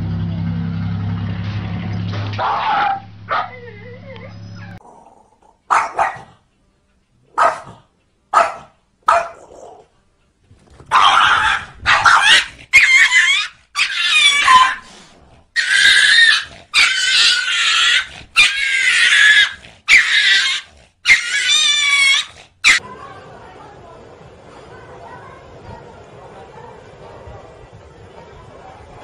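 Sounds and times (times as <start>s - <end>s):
small dog barking: 2.4s - 3.7s, 5.7s - 6.4s, 7.3s - 9.9s, 10.9s - 14.8s, 22.2s - 22.8s
snarls and squeals: 11.0s - 22.8s.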